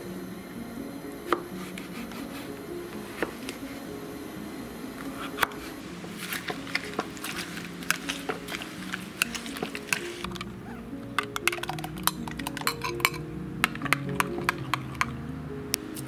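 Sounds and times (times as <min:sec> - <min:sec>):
soft background music: 0:00.0 - 0:16.0
small knocks and crackles: 0:06.1 - 0:10.6.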